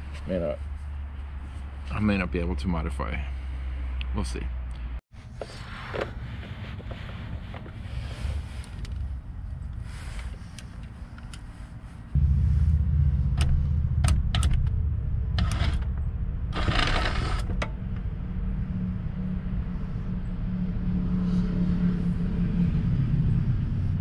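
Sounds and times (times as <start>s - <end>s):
short scrape: 12.2s - 17.6s.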